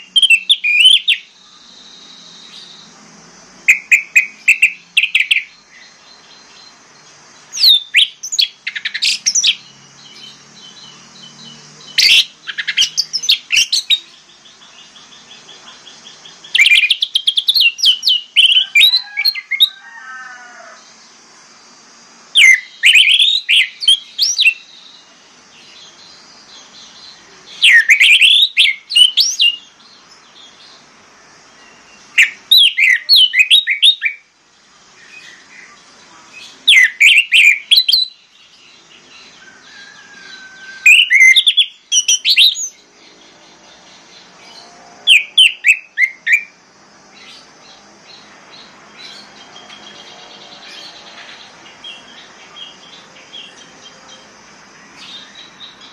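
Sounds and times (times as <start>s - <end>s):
thrush singing whistled notes: 0.0s - 19.9s, 20.9s - 34.3s, 34.9s - 55.9s.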